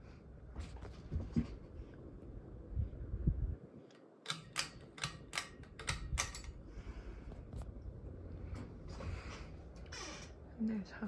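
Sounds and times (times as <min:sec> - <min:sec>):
ceiling fan rumble: 0:00.0 - 0:11.0
sharp clicks: 0:03.9 - 0:06.6.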